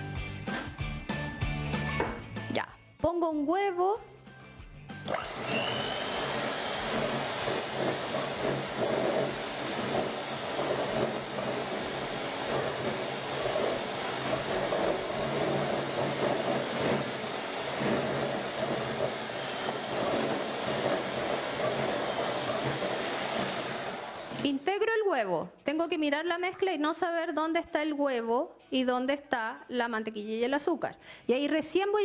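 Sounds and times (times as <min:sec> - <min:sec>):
electric hand mixer running: 0:05.0 - 0:24.7.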